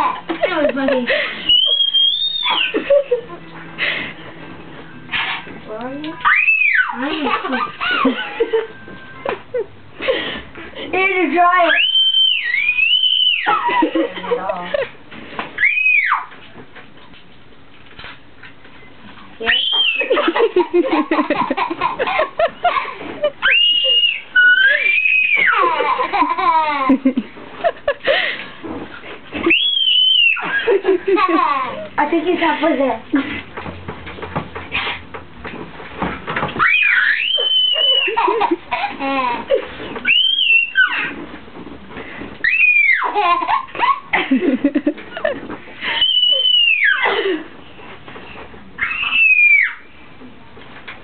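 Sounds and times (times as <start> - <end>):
toddler screaming: 1.5 - 2.8, 6.2 - 7.1, 11.7 - 13.8, 15.6 - 16.4, 19.5 - 20.2, 23.4 - 26.0, 29.5 - 30.7, 36.6 - 38.4, 40.0 - 41.2, 42.4 - 44.1, 46.0 - 47.2, 48.8 - 49.9
toddler giggling: 6.9 - 8.8, 19.8 - 28.3, 30.4 - 31.9, 37.4 - 39.8, 42.9 - 47.5.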